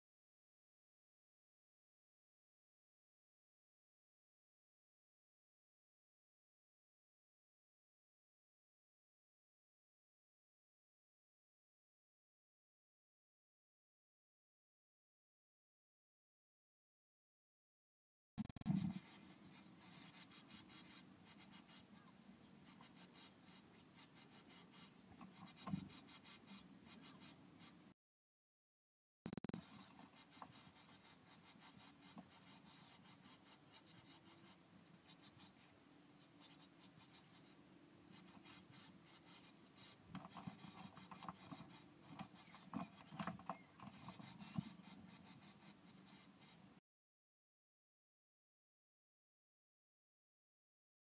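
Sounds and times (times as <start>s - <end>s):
chicks scratching and rustling in nest: 18.6s - 27.8s, 29.3s - 46.6s.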